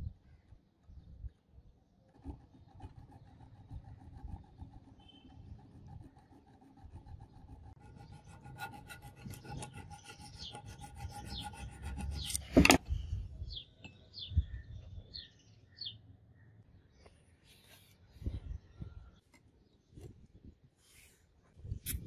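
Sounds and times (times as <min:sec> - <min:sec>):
hand file rasping on steel: 0:02.2 - 0:12.4.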